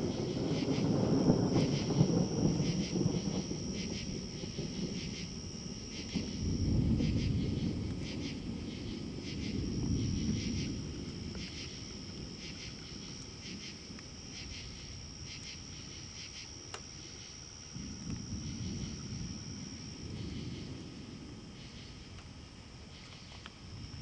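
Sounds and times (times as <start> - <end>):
distant thunder rumbling: 0.0 - 16.4, 17.3 - 23.0
night insects trilling and chirping: 0.0 - 24.0.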